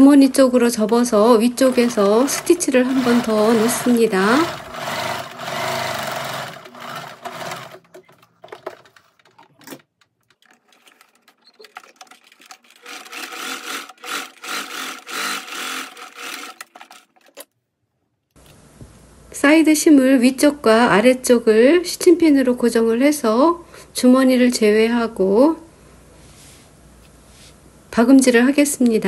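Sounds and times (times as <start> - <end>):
sewing machine stitching: 0.0 - 17.5.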